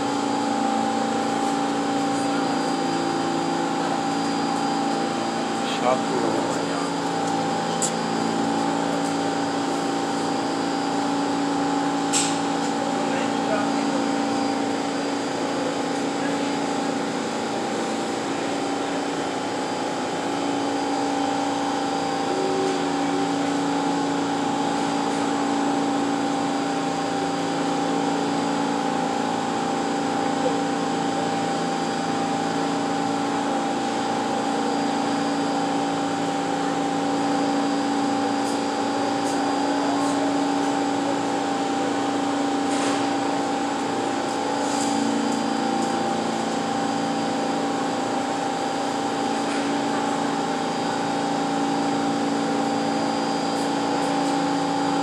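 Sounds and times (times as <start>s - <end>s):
subway car equipment humming: 0.0s - 55.0s.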